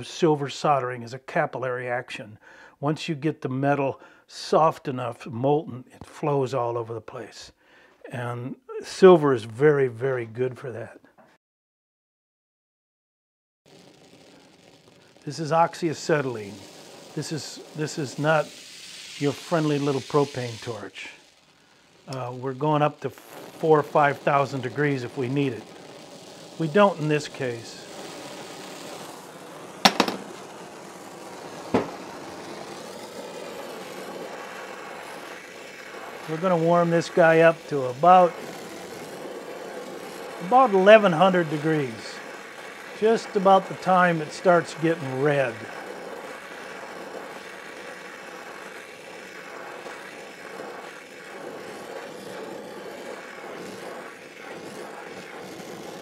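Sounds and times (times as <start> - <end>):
torch flame hissing: 13.7 - 56.0.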